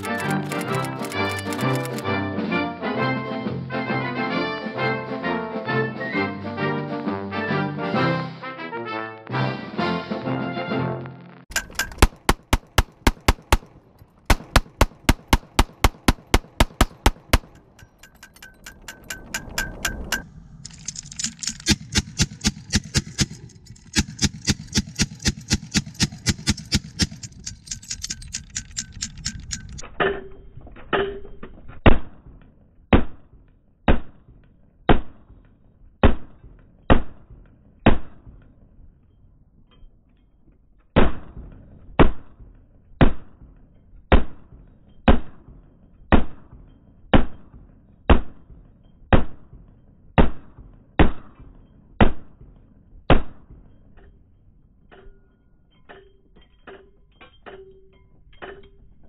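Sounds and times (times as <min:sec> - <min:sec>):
gatling gun firing: 0:11.5 - 0:17.6, 0:20.8 - 0:28.0.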